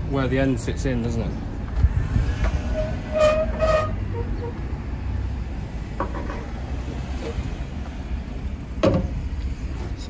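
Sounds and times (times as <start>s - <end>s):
wind buffeting microphone: 1.5s - 3.2s.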